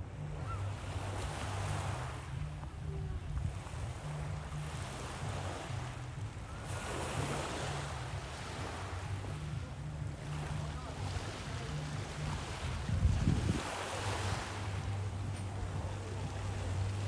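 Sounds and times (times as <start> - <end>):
wind buffeting microphone: 9.0 - 17.0
waves washing onto shingle: 10.1 - 17.0.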